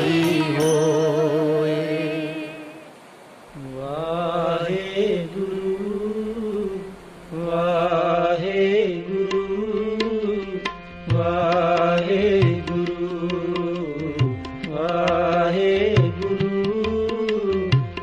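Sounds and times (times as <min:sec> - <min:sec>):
steady drone: 0:00.0 - 0:02.9
person singing long wavering notes: 0:00.0 - 0:03.0, 0:03.6 - 0:17.8
tabla strokes: 0:09.2 - 0:18.0.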